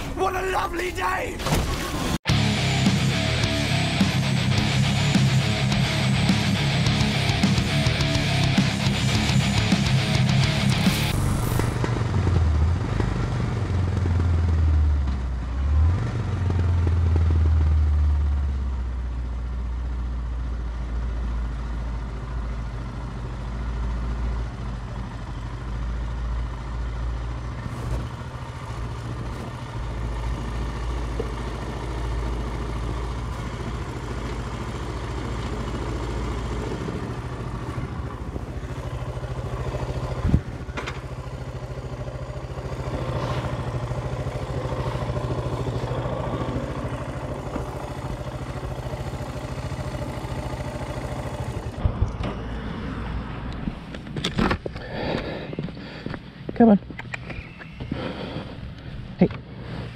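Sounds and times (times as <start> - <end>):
motorcycle engine idling: 2.3 - 15.4, 20.1 - 52.2
sharp click: 57.0 - 57.4.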